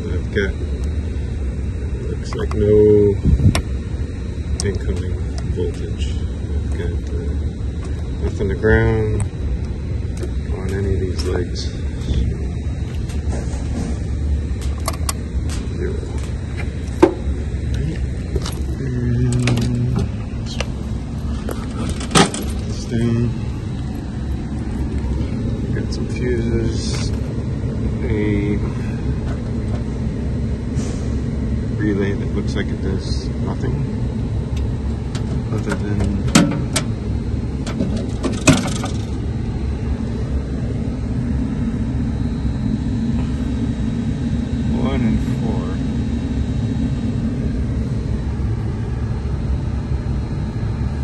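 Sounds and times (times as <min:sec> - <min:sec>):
steady low rumble: 0:00.0 - 0:51.0
sharp clicks and knocks: 0:14.6 - 0:17.2, 0:34.6 - 0:36.9.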